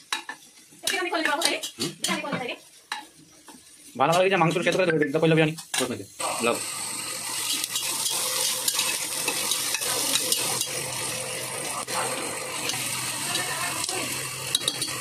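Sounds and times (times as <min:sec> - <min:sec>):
onions sizzling in oil: 0:00.0 - 0:15.0
metal spatula scraping pot: 0:12.7 - 0:15.0.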